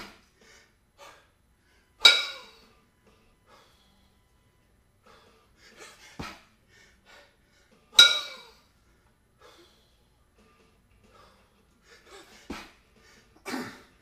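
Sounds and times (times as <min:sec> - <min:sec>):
hard breathing: 0:00.0 - 0:02.0, 0:03.4 - 0:04.3, 0:05.0 - 0:07.9, 0:08.8 - 0:10.2, 0:11.0 - 0:14.0
kettlebells clanking together: 0:02.0 - 0:02.6, 0:08.0 - 0:08.6.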